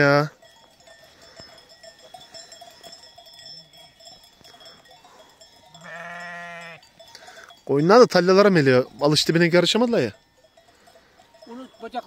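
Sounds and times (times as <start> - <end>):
sheep bells ringing faintly: 0.0 - 12.0
sheep bleating: 5.8 - 6.9.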